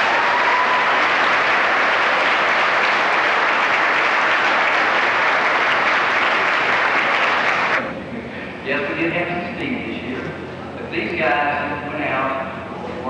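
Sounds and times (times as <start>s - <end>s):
audience applause: 0.0s - 7.8s.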